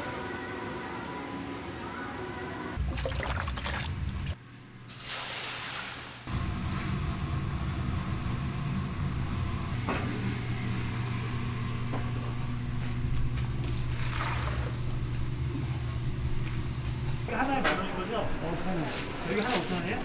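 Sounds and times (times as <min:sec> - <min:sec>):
low mechanical hum: 0:00.0 - 0:04.9, 0:06.3 - 0:20.0.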